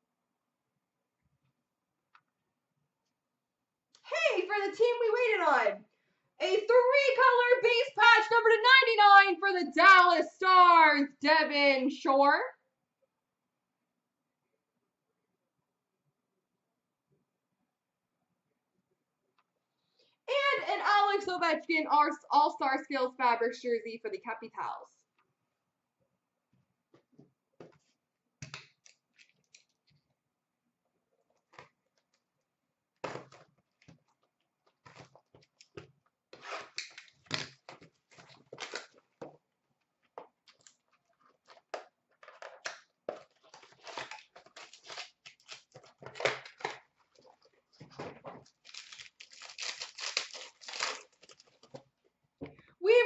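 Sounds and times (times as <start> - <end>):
foil wrappers crinkling: 43.1 - 47.5, 48.4 - 51.8
card packs tearing: 43.2 - 46.8, 48.5 - 51.8.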